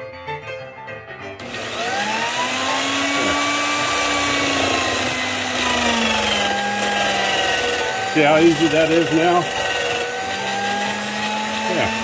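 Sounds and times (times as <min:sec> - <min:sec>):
electric drill whining: 0:01.4 - 0:12.0
wood being sanded: 0:01.4 - 0:12.0.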